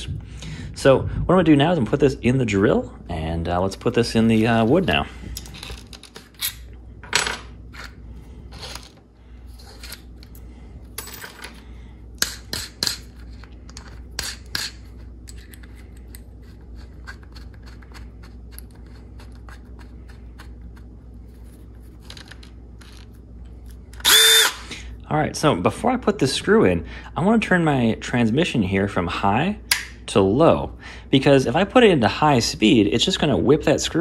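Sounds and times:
low steady hum: 0.0s - 34.0s.

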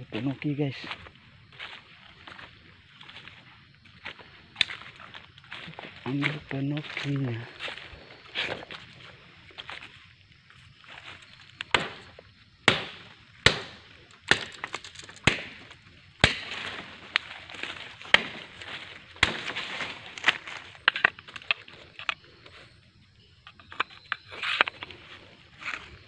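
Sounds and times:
leaves and brush rustling: 0.0s - 26.0s.

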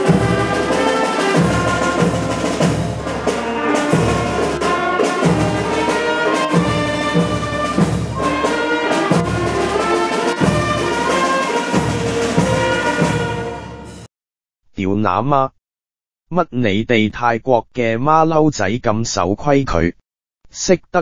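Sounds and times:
orchestral music led by brass: 0.0s - 14.1s
percussion beat: 0.0s - 14.1s.

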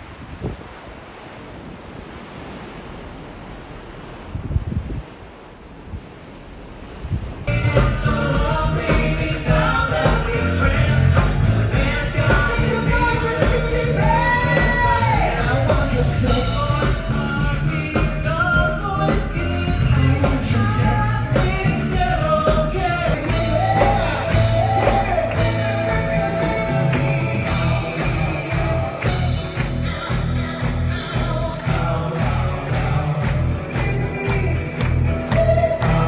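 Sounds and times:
band with drums and horns: 7.5s - 36.0s
male vocal group singing: 7.5s - 36.0s.

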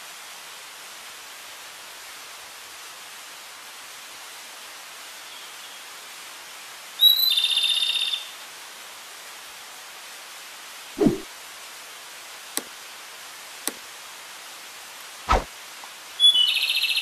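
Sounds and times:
steady hiss: 8.5s - 16.2s.

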